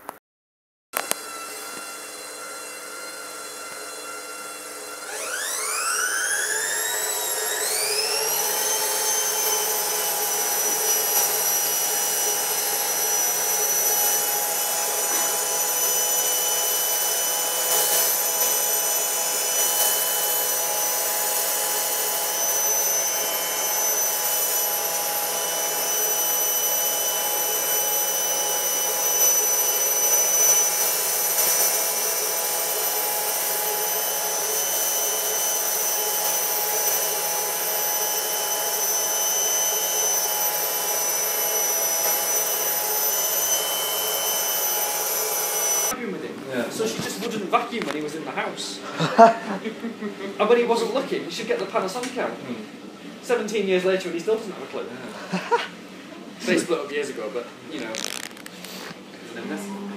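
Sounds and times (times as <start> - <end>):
electric motor whine: 1.0 - 46.0, 57.8 - 59.9.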